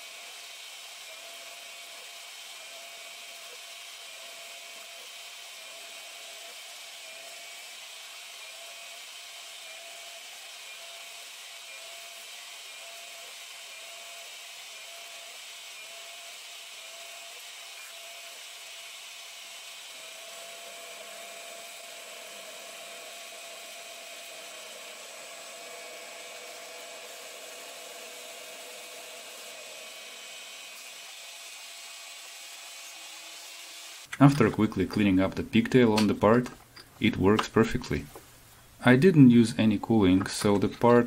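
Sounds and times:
metal lathe high whine: 0.0s - 34.1s
lower machine whine: 2.5s - 31.6s.

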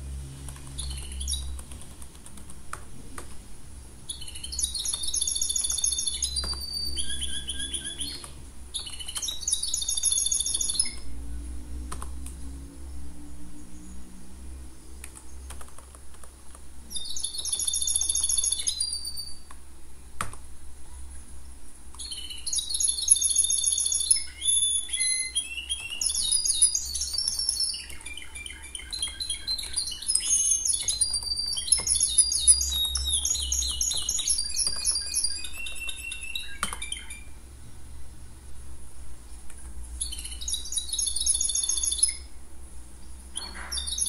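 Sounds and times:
birds chirping and warbling: 0.1s - 20.1s, 20.8s - 38.6s, 39.2s - 44.0s
computer keyboard keystrokes: 0.4s - 3.5s, 4.7s - 6.8s, 8.1s - 9.4s, 11.9s - 12.4s, 15.0s - 16.7s, 17.4s - 18.6s, 20.2s - 20.5s, 25.8s - 28.2s, 28.8s - 37.0s.

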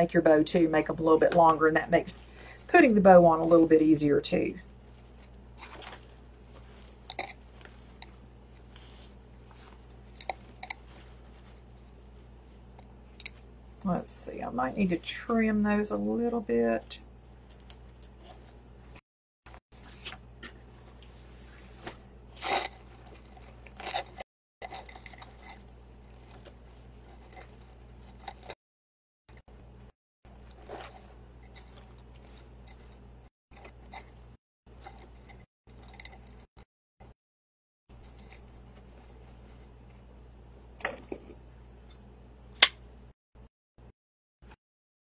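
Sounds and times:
steady low hum: 0.0s - 19.0s
faint crinkles and clicks: 17.4s - 18.4s.

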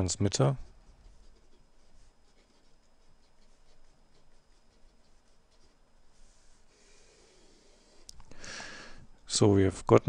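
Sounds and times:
marker pen scratching on paper: 0.6s - 6.7s.

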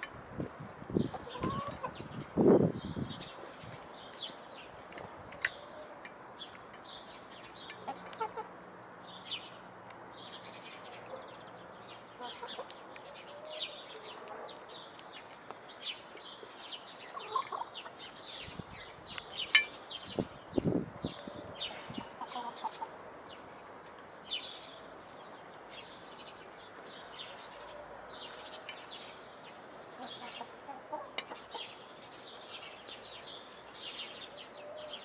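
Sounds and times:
hens clucking softly: 1.1s - 2.0s.

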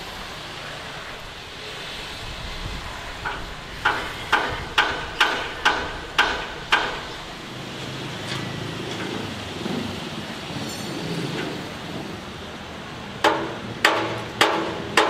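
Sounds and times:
steady background noise: 0.0s - 15.0s
hammer blows on metal: 3.2s - 7.2s.

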